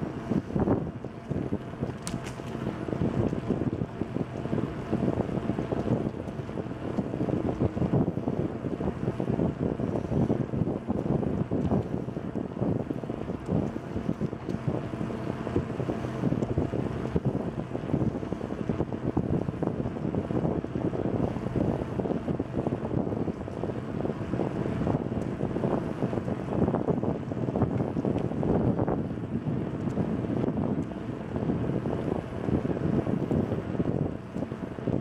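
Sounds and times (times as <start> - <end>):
wind buffeting microphone: 0.0 - 35.0
bicycle rattles and bumps: 1.8 - 3.3.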